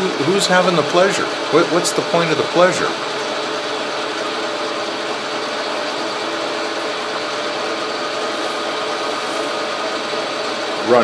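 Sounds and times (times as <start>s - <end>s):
metal lathe humming: 0.0s - 11.0s.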